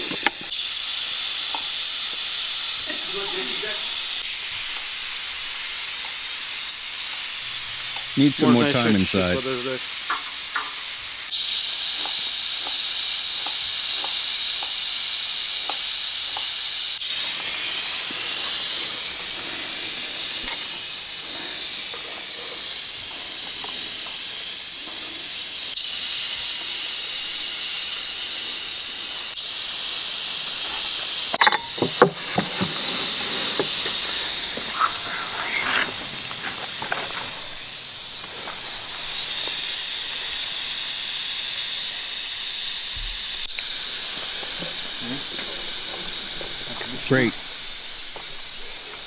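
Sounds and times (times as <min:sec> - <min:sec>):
meat sizzling on a grill: 0:00.0 - 0:49.0
metal skewers clinking: 0:31.3 - 0:33.6.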